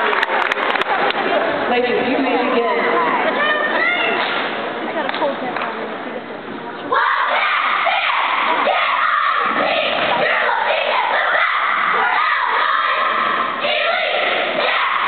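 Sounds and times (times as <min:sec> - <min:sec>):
girls shouting a cheer: 0:06.9 - 0:15.0.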